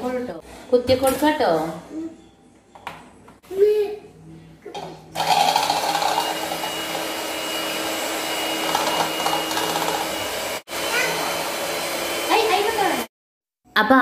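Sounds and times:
electric hand mixer whirring: 5.1s - 13.1s.

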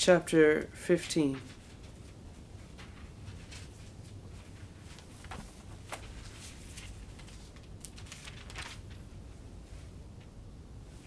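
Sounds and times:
low room hum: 0.0s - 11.0s
thin pages turning: 4.8s - 9.1s.

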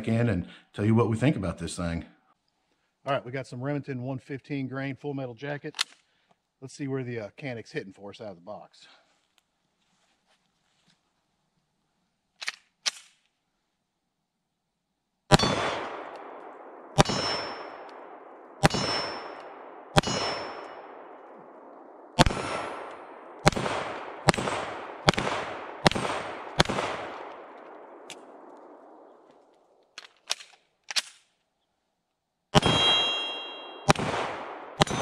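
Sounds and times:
pistol shots with echo: 15.3s - 29.2s, 32.6s - 35.0s
steel targets ringing: 17.0s - 17.9s, 18.6s - 19.4s, 20.0s - 21.0s, 32.6s - 34.0s, 34.8s - 35.0s.

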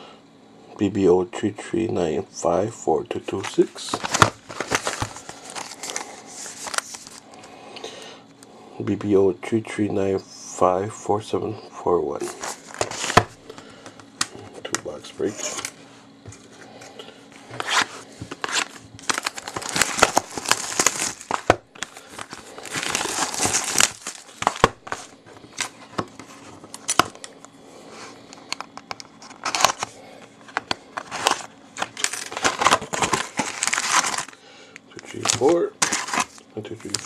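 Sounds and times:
foil packs rustling in hand: 3.4s - 7.4s, 12.2s - 15.8s, 17.4s - 27.2s, 29.1s - 37.0s
packaging crinkling and tearing: 3.4s - 7.5s, 12.2s - 13.6s, 17.5s - 27.4s, 28.5s - 34.4s, 35.0s - 37.0s.

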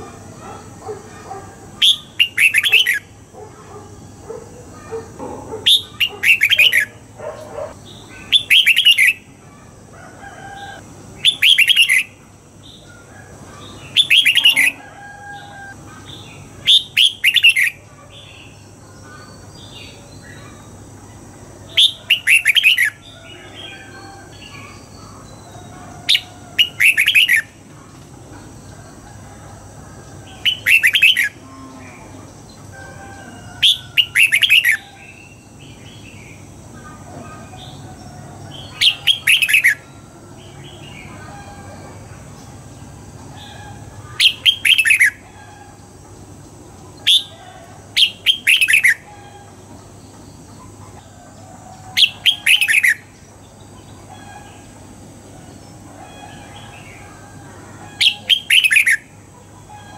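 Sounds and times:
bulbul singing: 0.0s - 3.2s, 4.8s - 9.3s, 11.2s - 12.9s, 21.7s - 27.6s, 38.6s - 42.1s, 43.4s - 45.8s, 46.9s - 50.7s, 58.0s - 59.9s.

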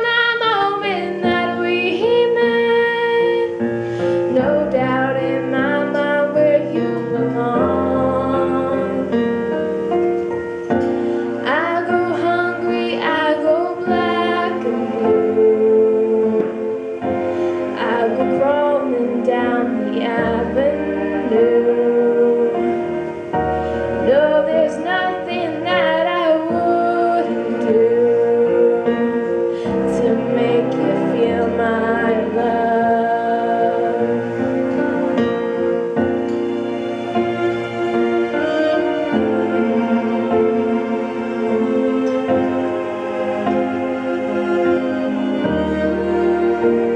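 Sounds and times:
woman singing: 0.0s - 9.5s, 11.4s - 16.9s, 17.6s - 23.0s, 23.9s - 35.2s
piano: 0.0s - 46.9s.

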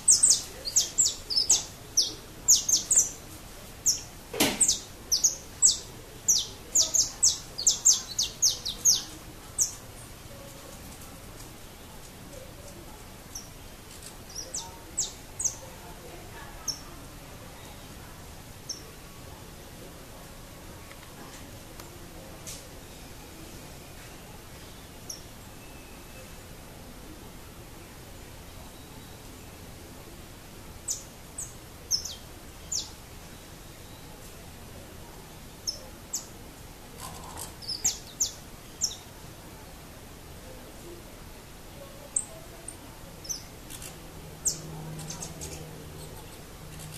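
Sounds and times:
finch chirps: 0.0s - 3.2s, 3.8s - 9.8s, 37.0s - 39.0s
steady background noise: 0.0s - 46.9s
steady outdoor hiss: 0.0s - 46.9s.

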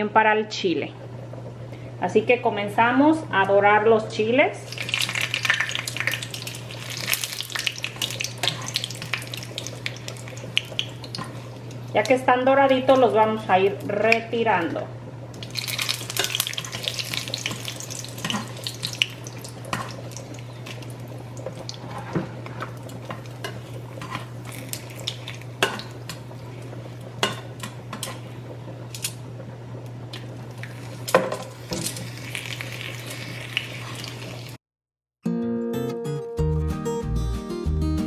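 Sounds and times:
chiles sizzling in oil: 4.6s - 14.5s, 15.3s - 34.6s.

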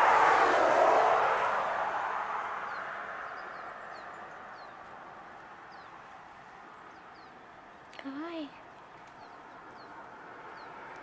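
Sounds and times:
vehicle passing: 0.0s - 11.0s
bird chirping: 2.6s - 11.0s.

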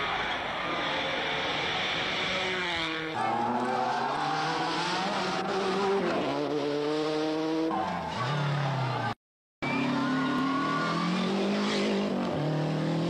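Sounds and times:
rally car engine at full throttle: 0.0s - 13.0s.

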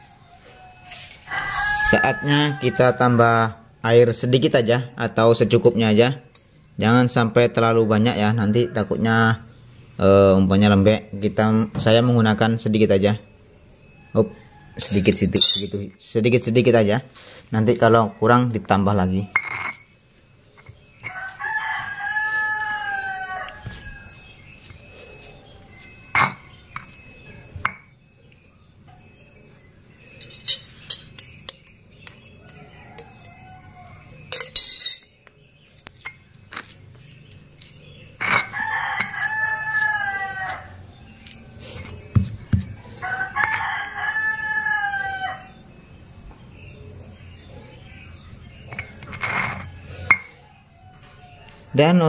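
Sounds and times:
rooster crowing: 0.0s - 3.6s, 21.0s - 24.5s, 32.4s - 34.2s, 38.2s - 41.9s, 42.8s - 45.7s, 49.9s - 51.9s
stone pestle grinding in mortar: 38.2s - 39.8s.

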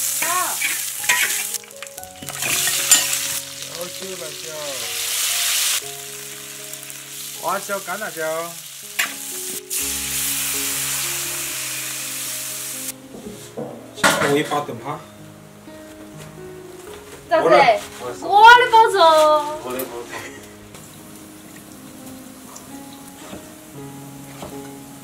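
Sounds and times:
food sizzling in a wok: 0.0s - 14.7s, 17.4s - 25.0s
soft background music: 0.0s - 25.0s
spatula scraping a wok: 0.1s - 1.6s.

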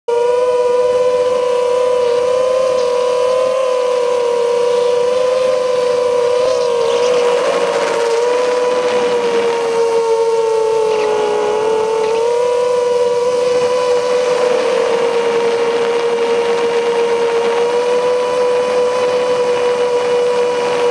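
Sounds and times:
drone propellers whining: 0.1s - 20.9s.

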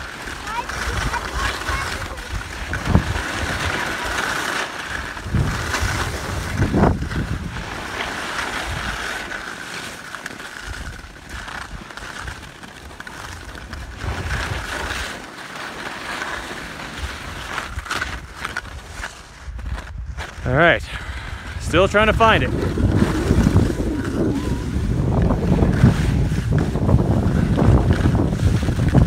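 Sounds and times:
wind buffeting microphone: 0.0s - 4.2s, 4.9s - 7.9s, 19.4s - 29.0s
sliding on snow: 0.0s - 29.0s.

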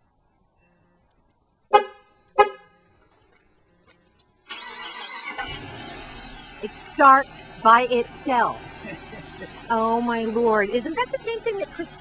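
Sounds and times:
car horn toots: 1.7s - 2.8s.

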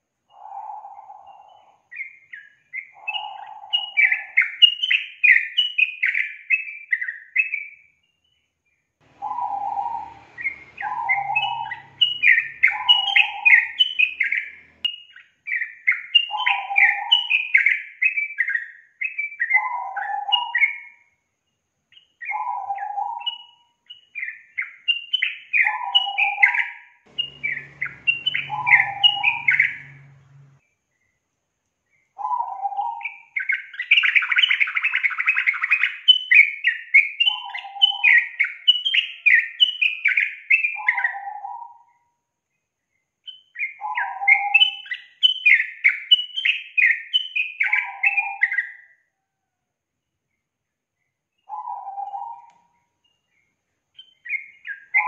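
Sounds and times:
bird harsh chatter: 9.1s - 14.9s, 27.1s - 30.6s
bulbul singing bubbly phrases: 27.1s - 30.6s.

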